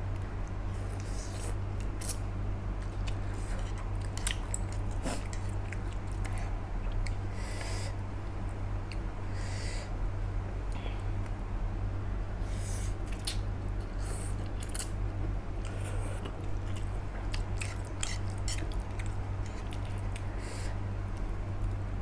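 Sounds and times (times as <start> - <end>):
person chewing noodles: 15.6 - 20.8.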